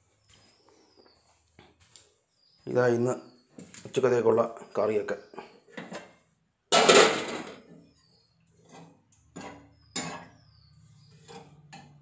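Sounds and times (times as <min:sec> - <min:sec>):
steel kitchenware clattering: 0:06.8 - 0:07.7, 0:08.6 - 0:10.4.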